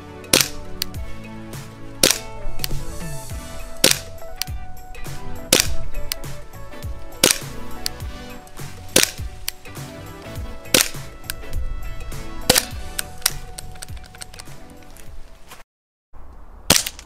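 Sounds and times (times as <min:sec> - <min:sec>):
background music: 0:00.0 - 0:15.3
airsoft pistol shots: 0:00.3 - 0:00.6, 0:02.0 - 0:02.7, 0:03.8 - 0:04.5, 0:05.4 - 0:06.3, 0:07.2 - 0:07.7, 0:08.9 - 0:09.3, 0:10.7 - 0:11.2, 0:12.5 - 0:13.4.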